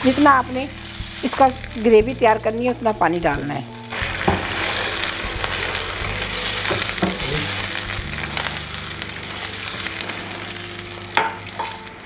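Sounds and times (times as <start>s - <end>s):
vegetables sizzling in a frying pan: 0.0s - 12.0s
water poured into pan: 3.9s - 11.6s
wooden spoon stirring: 3.9s - 11.9s.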